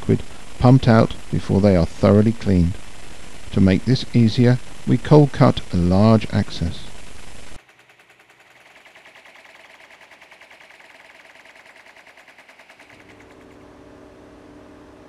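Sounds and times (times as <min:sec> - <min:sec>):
power breaker hammering ground: 0:07.6 - 0:13.6.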